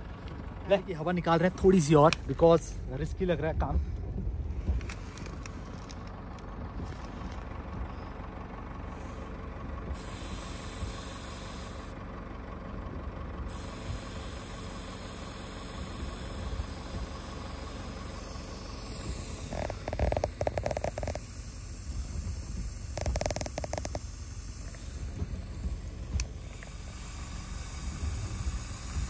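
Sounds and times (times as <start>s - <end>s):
vehicle engine idling: 0.0s - 29.0s
air hissing out of tyre: 8.8s - 12.0s, 13.4s - 29.0s.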